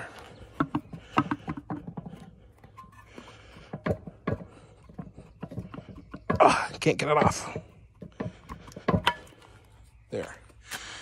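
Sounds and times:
metal engine parts clicking and knocking: 0.0s - 9.8s
metal scraping: 0.6s - 9.6s.

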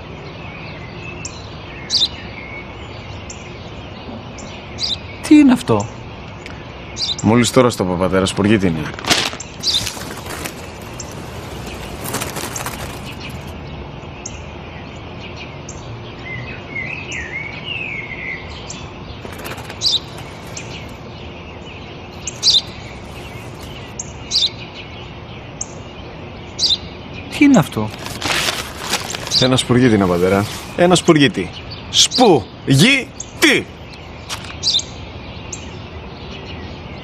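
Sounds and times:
sparrow chirping: 0.0s - 8.8s, 9.4s - 37.0s
newspaper rustling: 8.8s - 13.6s, 19.2s - 21.0s, 22.3s - 24.0s, 27.5s - 31.1s, 34.3s - 34.6s.

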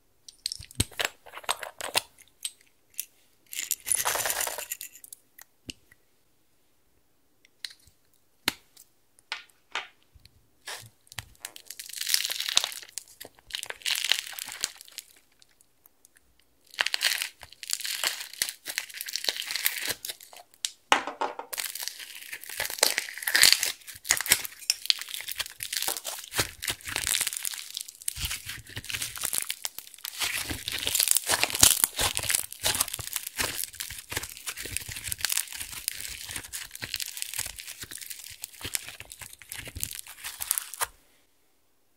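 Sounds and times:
bead slime crackling and popping: 10.7s - 20.8s, 21.5s - 40.9s.

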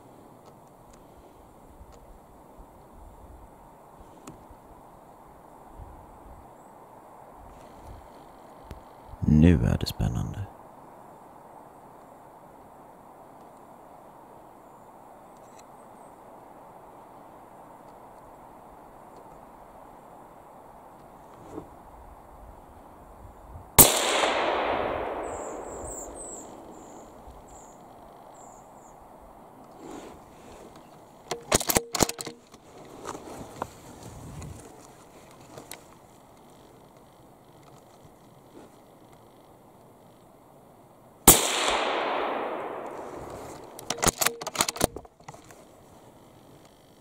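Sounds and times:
gunshot echo: 23.8s - 27.0s, 41.3s - 44.0s
rifle shot: 23.8s - 27.0s, 41.3s - 44.9s
sharp clicks and knocks: 31.3s - 32.6s, 43.5s - 45.5s.

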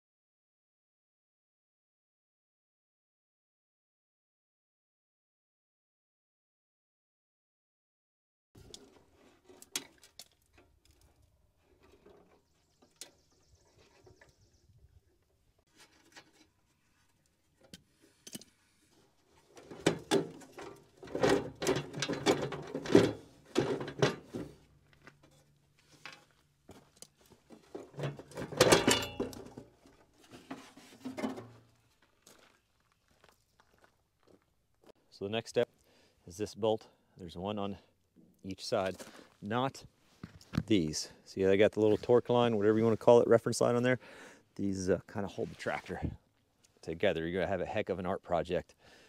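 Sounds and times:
metal parts clinking and clattering: 27.8s - 29.7s.

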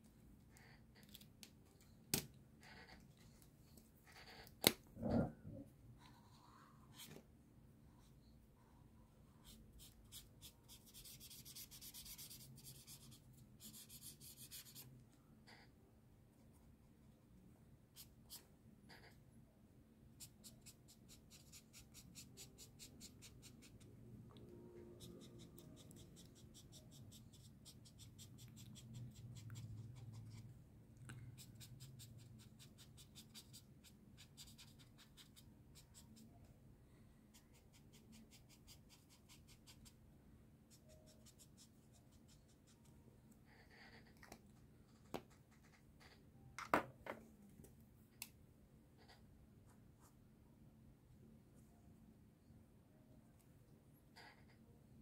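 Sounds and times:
marker scratching on paper: 2.6s - 3.1s, 4.0s - 5.3s, 9.4s - 14.9s, 18.0s - 19.2s, 20.2s - 23.9s, 24.8s - 30.5s, 31.4s - 36.3s, 37.3s - 40.0s, 40.7s - 42.8s, 43.5s - 44.4s.

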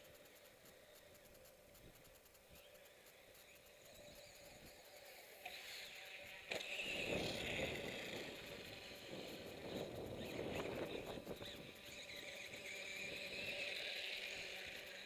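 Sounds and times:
electric motor whining: 3.6s - 15.0s.

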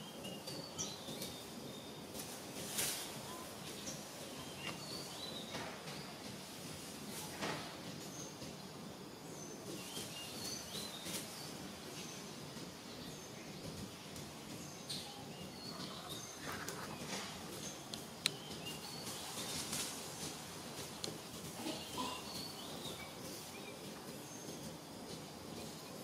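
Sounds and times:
small birds chirping: 0.0s - 26.0s
steady background hiss: 0.0s - 26.0s.

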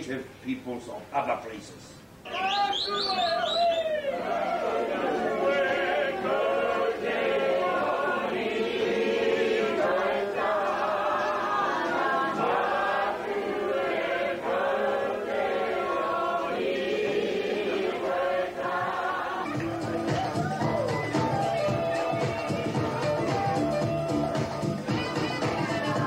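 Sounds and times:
large group singing: 4.1s - 23.7s, 24.8s - 26.0s.

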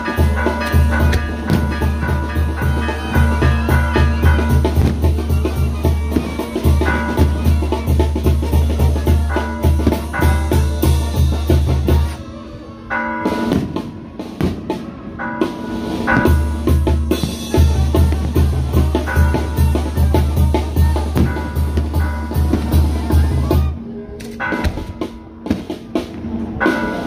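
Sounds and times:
heavy bass drum beat: 0.0s - 12.2s, 15.5s - 23.8s
music with drum kit: 0.0s - 12.2s, 15.5s - 23.8s.

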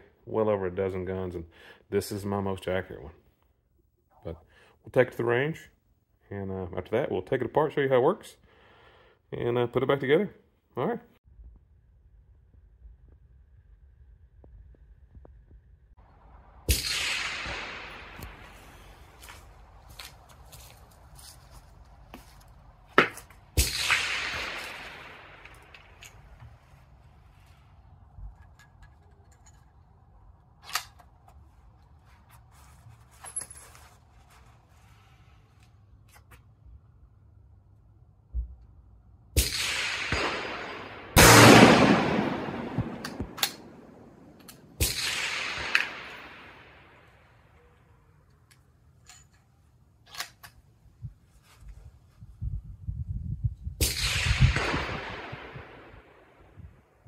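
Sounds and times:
rifle shot with echo: 16.6s - 19.4s, 23.5s - 26.4s, 39.4s - 47.2s, 53.8s - 56.5s
rifle action metal clicks: 30.6s - 31.2s, 43.0s - 43.7s, 48.3s - 50.6s
rifle bolt clicks: 43.0s - 43.7s, 50.1s - 50.6s.

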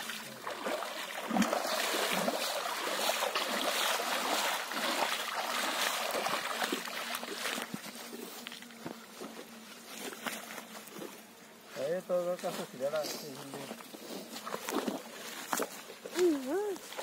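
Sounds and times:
net sloshing in water: 0.0s - 7.6s
fish splashing in water: 0.0s - 7.9s.

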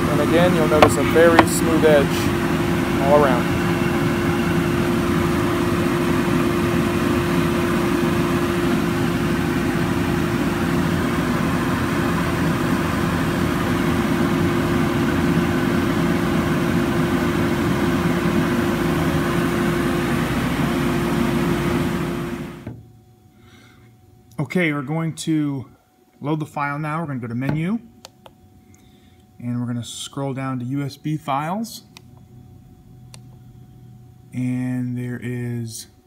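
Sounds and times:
cnc router machinery whirring: 0.0s - 22.7s.

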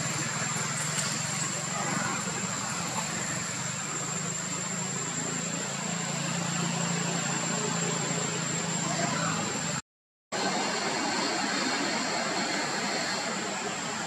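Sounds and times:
high-pitched whine: 0.0s - 9.8s, 10.4s - 14.0s
low mechanical hum: 0.0s - 9.8s.

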